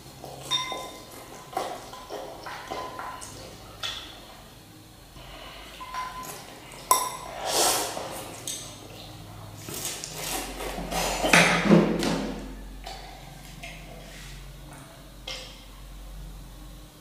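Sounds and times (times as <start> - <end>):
metal spoon clinking on ceramic bowl: 0.5 - 1.0.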